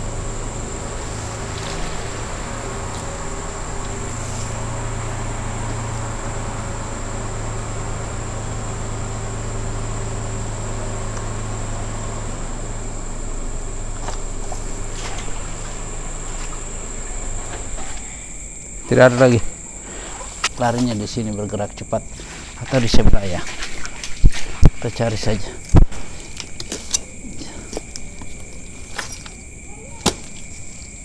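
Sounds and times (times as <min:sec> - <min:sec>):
low steady hum: 0:00.0 - 0:31.0
night insects trilling: 0:00.0 - 0:31.0
weeds rustling: 0:00.7 - 0:05.0, 0:13.8 - 0:18.3, 0:18.9 - 0:31.0.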